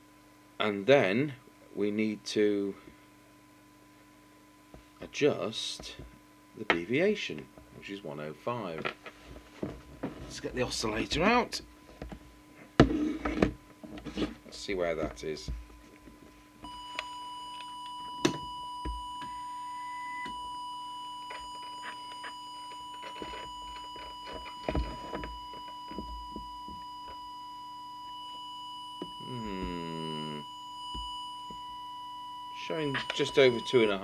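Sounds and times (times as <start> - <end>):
steady audio test tone: 12.9 - 34.0.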